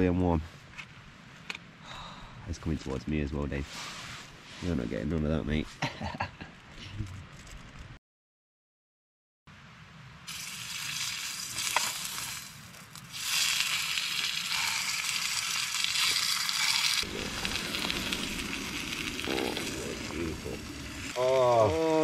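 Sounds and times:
steak sizzling: 10.3s - 22.0s.

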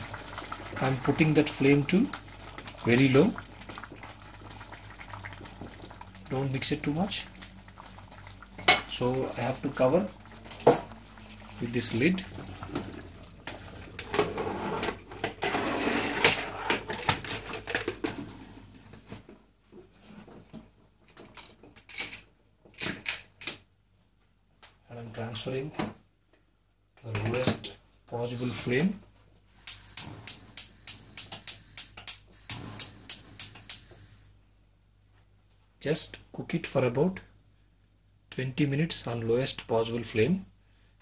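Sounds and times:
gas hob spark igniter clicking: 29.6s - 34.0s.

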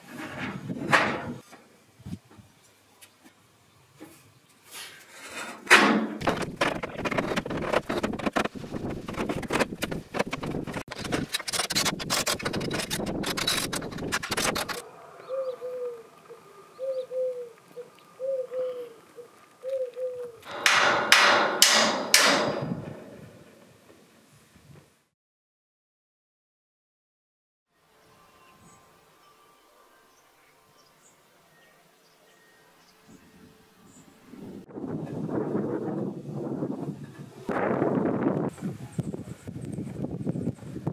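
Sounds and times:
pigeon cooing: 14.8s - 20.5s
scaffold tubes clanking: 20.4s - 23.5s
loud sharp knocks: 20.5s - 23.1s.

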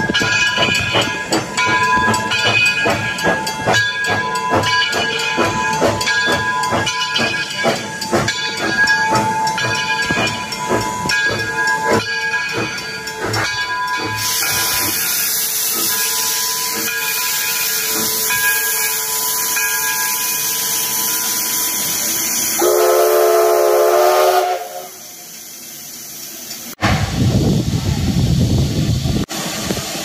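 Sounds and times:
locomotive bell ringing: 0.0s - 25.0s
steam hissing from cylinders: 0.0s - 30.0s
steam whistle blast: 22.4s - 25.2s.

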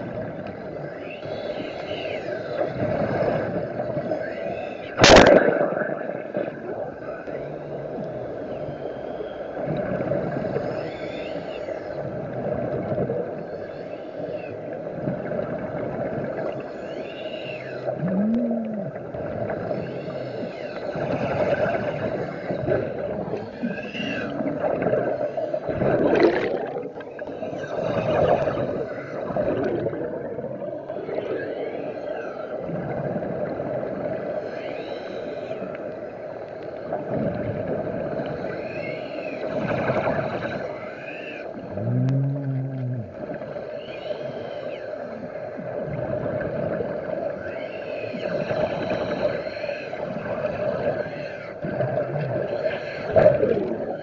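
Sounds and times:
steady underwater drone: 0.0s - 54.0s
rushing air bubbles: 5.0s - 6.7s, 17.9s - 19.1s, 22.5s - 30.8s, 51.7s - 54.0s.

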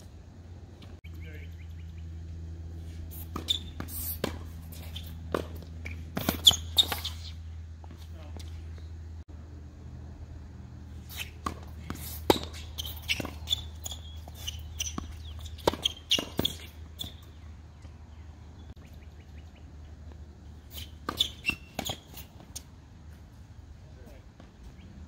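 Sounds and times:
short high shoe chirps: 2.8s - 5.2s, 5.8s - 7.4s, 11.0s - 17.4s, 20.6s - 22.7s
racket striking tennis ball: 3.0s - 8.5s, 11.0s - 17.4s, 20.7s - 22.7s
tennis ball bouncing: 3.2s - 8.5s, 11.1s - 18.0s, 20.7s - 23.2s.

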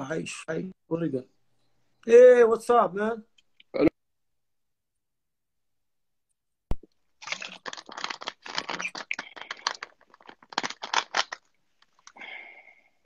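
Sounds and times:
faint steady tone: 0.2s - 2.4s.

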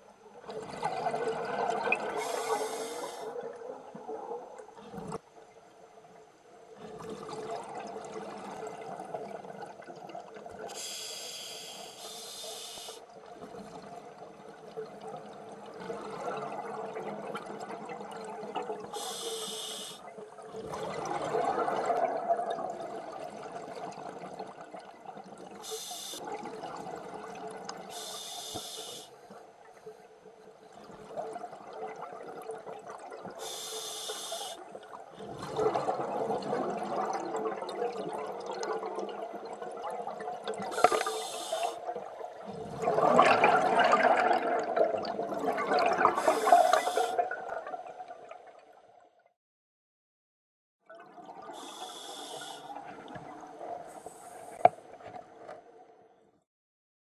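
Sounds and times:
regulator hiss on inhalation: 2.2s - 3.3s, 10.7s - 13.0s, 18.9s - 20.0s, 25.6s - 26.2s, 27.9s - 29.2s, 33.4s - 34.6s, 40.7s - 41.8s, 46.2s - 47.2s, 51.6s - 52.7s
gurgling exhaust bubbles: 42.4s - 47.7s.

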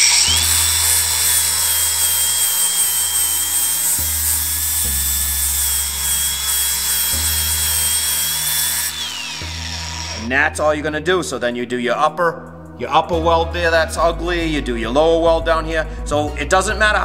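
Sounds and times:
angle grinder grinding metal: 0.0s - 10.4s.

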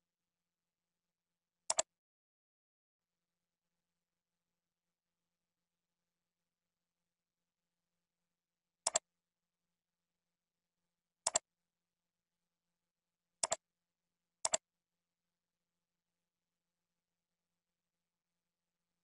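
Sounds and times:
computer mouse clicking: 1.7s - 1.9s, 8.8s - 9.1s, 11.2s - 11.5s, 13.4s - 13.6s, 14.4s - 14.7s.

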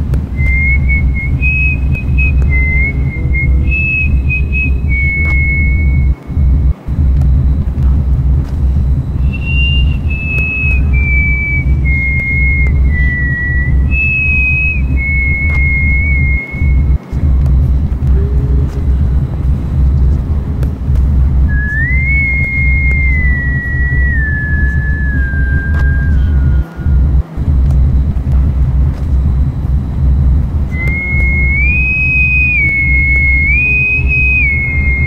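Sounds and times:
deep steady drone: 0.0s - 35.0s
high whistle-like melody: 0.2s - 35.0s.

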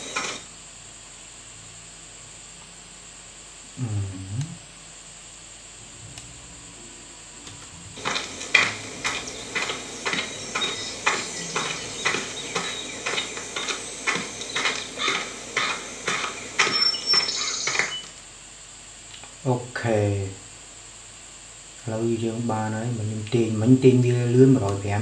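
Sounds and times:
crunchy footsteps on dirt: 8.0s - 18.0s.

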